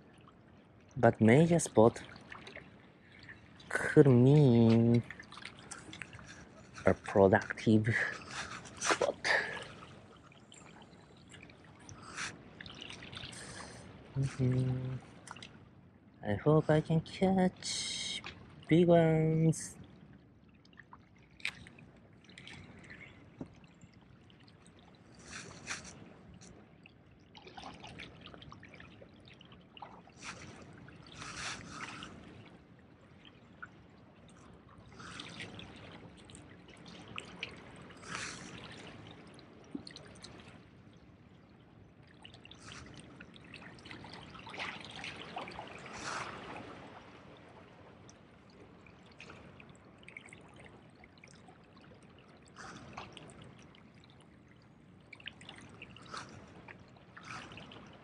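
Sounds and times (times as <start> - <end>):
small waves lapping on rocks: 0.0 - 15.6, 21.0 - 58.0.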